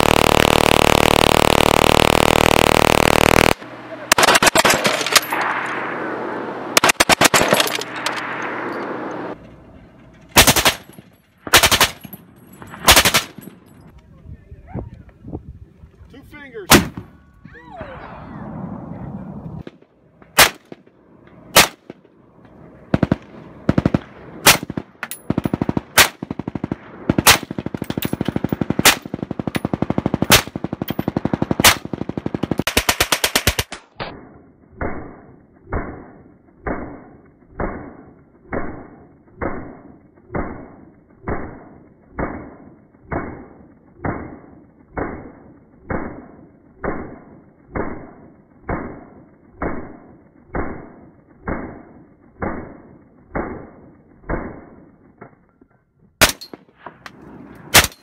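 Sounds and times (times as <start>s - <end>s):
rapid automatic gunfire: 0.0s - 5.0s, 10.4s - 10.8s, 11.5s - 12.0s, 12.8s - 13.4s, 22.9s - 33.8s
slow-motion muffled gunshots: 0.0s - 6.0s, 22.8s - 55.4s
heavy single gunshots: 16.7s - 17.1s.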